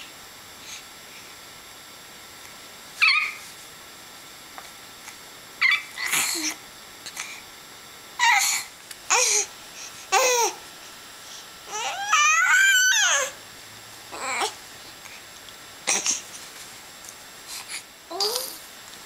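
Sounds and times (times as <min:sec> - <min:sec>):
baby squealing and babbling: 0:03.0 - 0:03.4, 0:05.6 - 0:06.5, 0:08.2 - 0:08.5, 0:11.7 - 0:13.3.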